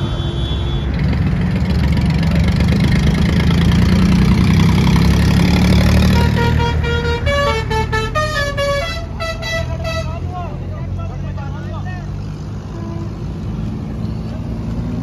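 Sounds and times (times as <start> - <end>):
musical vehicle horn: 0.0 - 1.1, 6.0 - 10.2
engines rumbling: 0.0 - 15.0.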